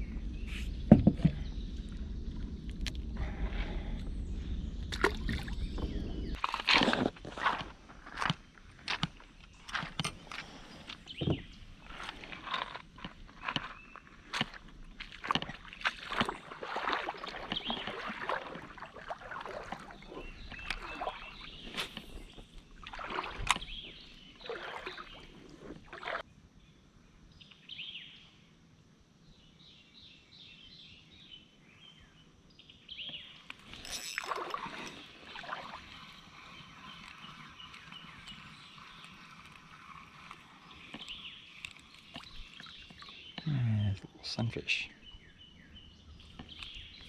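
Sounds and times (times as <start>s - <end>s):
bird song: 0.0s - 7.1s, 8.3s - 28.6s, 29.2s - 47.0s
water sloshing: 4.8s - 26.2s, 33.4s - 43.6s.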